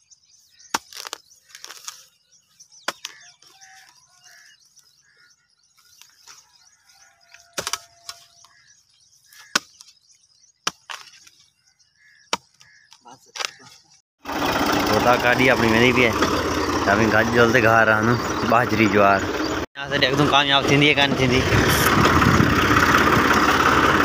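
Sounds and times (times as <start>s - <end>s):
spade chopping into soil: 0.7s - 2.0s, 2.9s - 3.2s, 7.5s - 8.2s, 9.4s - 10.0s, 10.6s - 11.4s.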